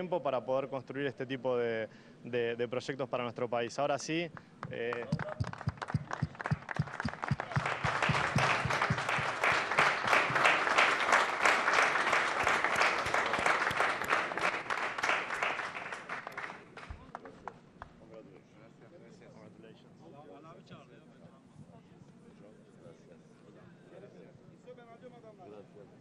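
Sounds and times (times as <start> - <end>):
crowd applauding: 4.7 - 17.6.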